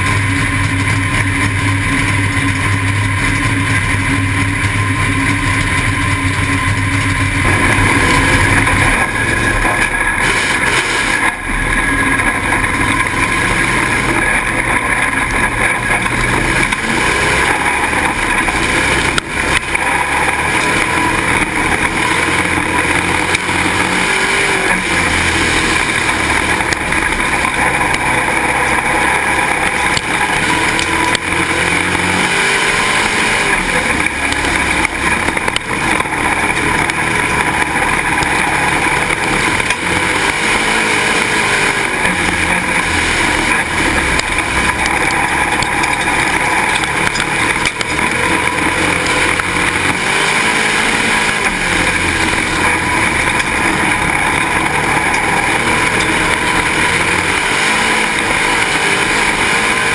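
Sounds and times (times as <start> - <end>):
heavy rushing noise: 0.0 - 59.9
race car engine: 0.0 - 59.9.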